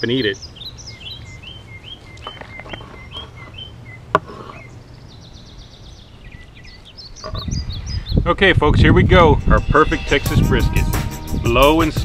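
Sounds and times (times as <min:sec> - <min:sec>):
bird trill: 0:00.0 - 0:08.2
songbirds chirping: 0:00.0 - 0:12.0
knife cutting on wooden board: 0:04.2 - 0:04.7.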